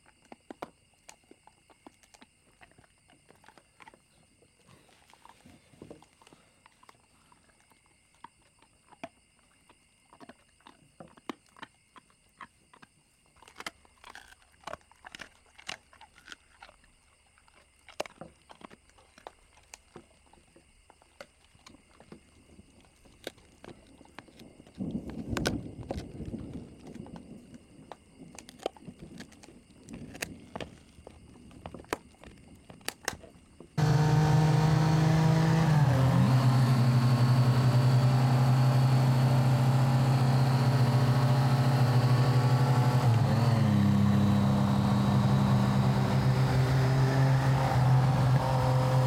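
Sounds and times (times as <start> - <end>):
dog chewing a bone: 0.0 - 27.2, 28.3 - 33.3.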